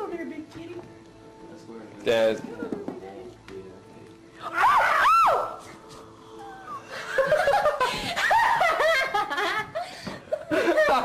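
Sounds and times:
person laughing: 0:06.6 - 0:11.0.

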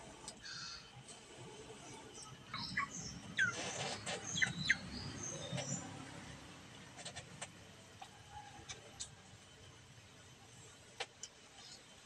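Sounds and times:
small birds chirping: 0:01.8 - 0:06.1, 0:11.2 - 0:12.0.

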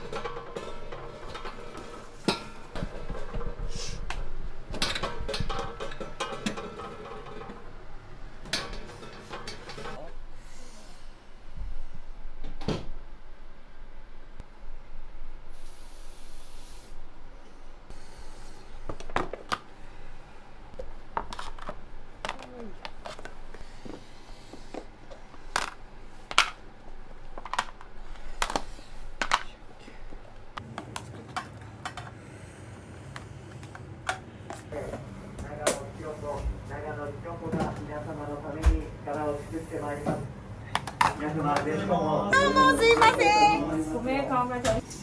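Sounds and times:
dishes and utensils clattering: 0:00.0 - 0:04.1, 0:04.7 - 0:07.8, 0:08.4 - 0:10.1
steady low hum: 0:00.0 - 0:45.0.

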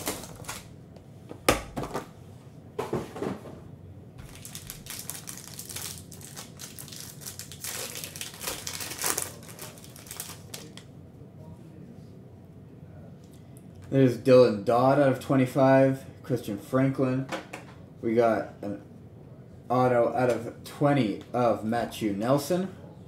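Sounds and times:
foil wrapper crinkling and tearing: 0:00.0 - 0:00.7, 0:04.2 - 0:10.8.

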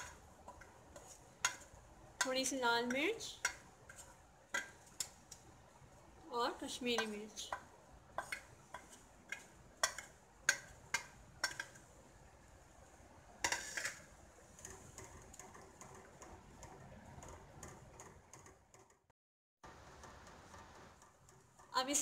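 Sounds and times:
wooden spatula stirring gravy: 0:00.0 - 0:06.2, 0:06.8 - 0:19.0, 0:19.8 - 0:21.7
steel spoon tapping cookware: 0:08.2 - 0:11.8
cookware clatter: 0:13.4 - 0:15.6.

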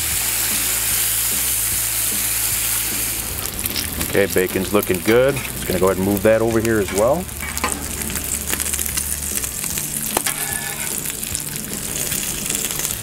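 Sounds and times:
food sizzling on a griddle: 0:00.0 - 0:13.0
metal spatula scraping: 0:05.0 - 0:05.9, 0:06.7 - 0:09.5, 0:10.1 - 0:11.3.

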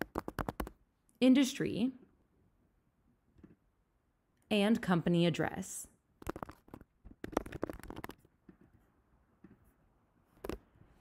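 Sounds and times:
computer keyboard typing: 0:00.0 - 0:00.8, 0:06.2 - 0:08.3.

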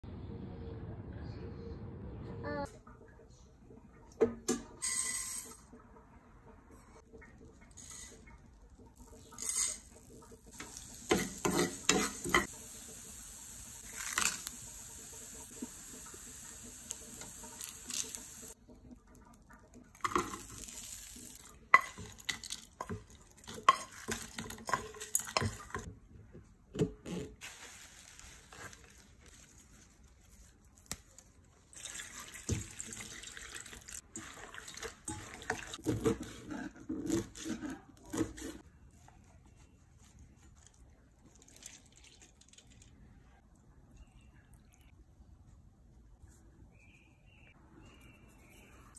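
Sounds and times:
spoon stirring and clicking in pan: 0:09.0 - 0:12.5, 0:21.4 - 0:25.9
spices sizzling in oil: 0:09.0 - 0:18.6, 0:20.0 - 0:25.9, 0:27.4 - 0:29.3
metal spoon scraping and tapping: 0:10.6 - 0:12.5.

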